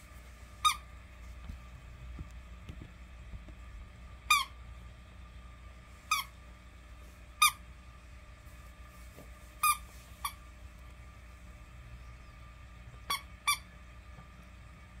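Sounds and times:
rubber toy squeaking: 4.3s - 4.5s, 6.1s - 6.3s, 9.6s - 10.4s, 13.1s - 13.7s.

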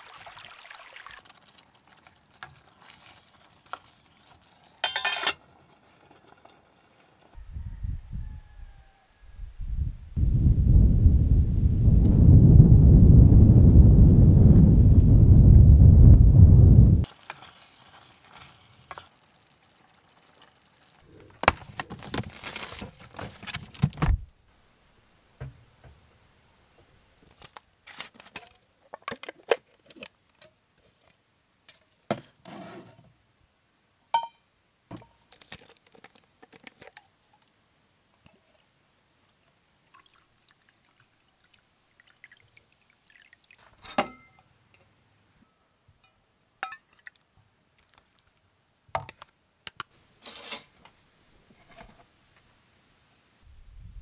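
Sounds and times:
liquid pouring: 0.0s - 3.4s, 38.2s - 43.8s
cookware clinking and knocking: 4.8s - 5.4s, 34.2s - 34.4s, 43.8s - 44.4s.

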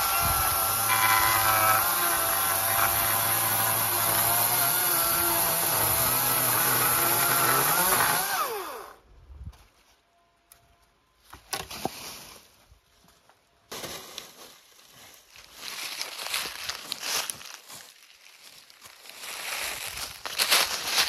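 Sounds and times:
electric chainsaw whining: 0.0s - 9.0s.

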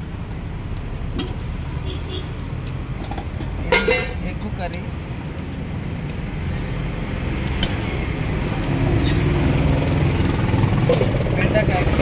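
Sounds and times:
low rumble of road traffic: 0.0s - 12.0s
ladle clinking against pot: 3.2s - 4.2s.

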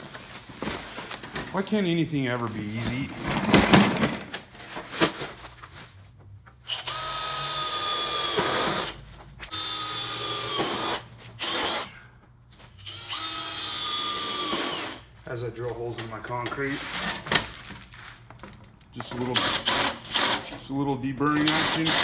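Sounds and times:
cordless drill whining: 6.6s - 12.0s, 12.7s - 15.0s.

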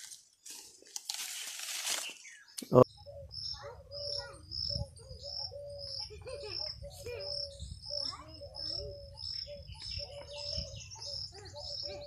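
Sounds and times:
leaves and branches rustling: 0.0s - 2.4s
birds chirping: 1.4s - 12.0s.

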